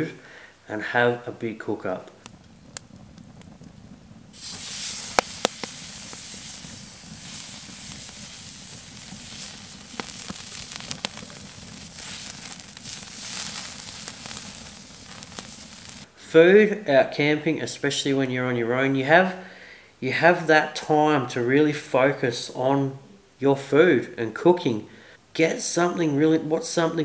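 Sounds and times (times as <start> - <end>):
sharp pops: 2.1 - 16.1
steak sizzling on a grill: 4.3 - 16.1.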